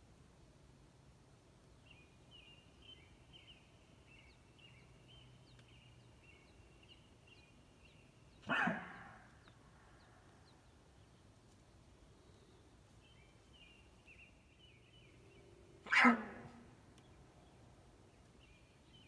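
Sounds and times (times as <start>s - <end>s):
elk mew call: 8.4s - 9.2s, 15.8s - 16.7s.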